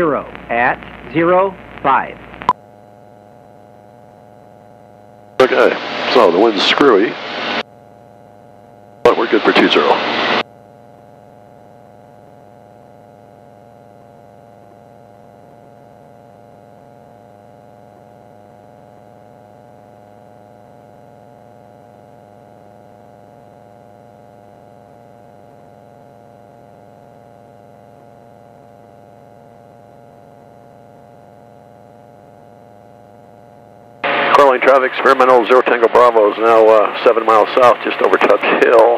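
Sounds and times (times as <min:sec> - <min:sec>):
faint hum with held tones: 0:00.0 - 0:38.9.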